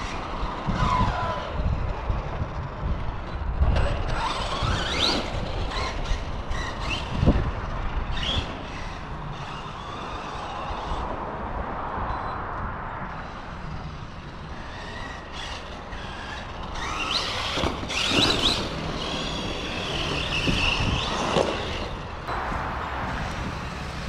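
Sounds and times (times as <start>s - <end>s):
electric toy truck motor whining: 0.0s - 3.0s, 3.6s - 11.0s, 14.5s - 22.2s.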